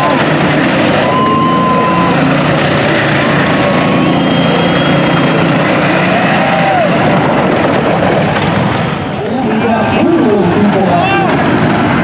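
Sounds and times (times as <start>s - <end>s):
small engine running: 0.0s - 6.8s.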